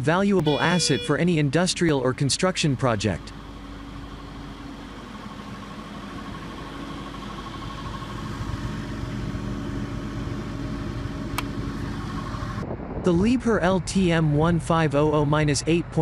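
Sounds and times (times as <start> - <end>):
crane engine running: 0.0 - 12.8.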